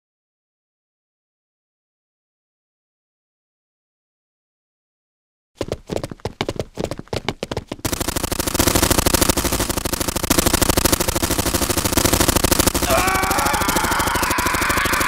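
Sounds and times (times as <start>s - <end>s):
automatic rifle fire: 7.8s - 15.0s.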